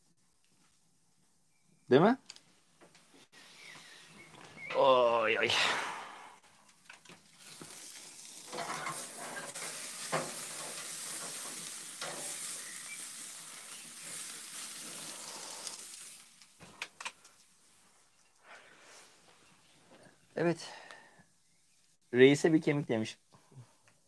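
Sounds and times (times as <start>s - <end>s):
steak sizzling on a grill: 7.2s - 17.1s
grill lid clanking shut: 8.5s - 12.4s.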